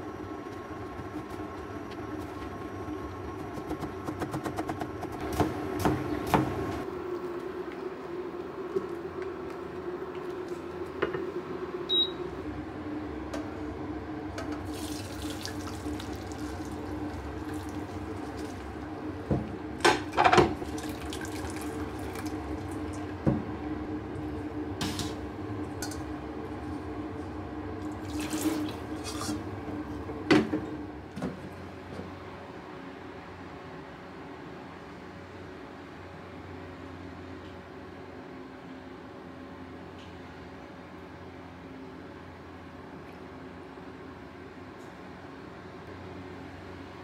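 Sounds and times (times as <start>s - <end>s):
water pouring into steel sink: 14.6s - 18.6s, 20.6s - 22.4s, 28.0s - 29.4s.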